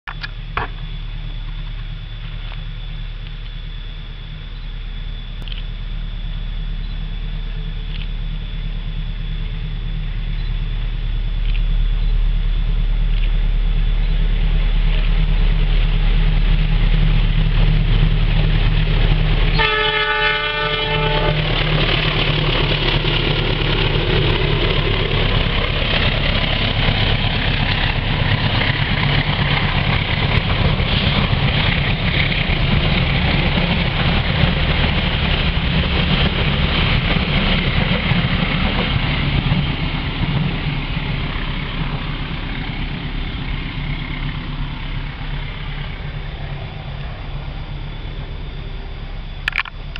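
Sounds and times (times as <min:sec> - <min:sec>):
diesel locomotive running: 0:00.1 - 0:49.9
train wheels on rails: 0:00.1 - 0:49.9
train horn blast: 0:19.5 - 0:21.6.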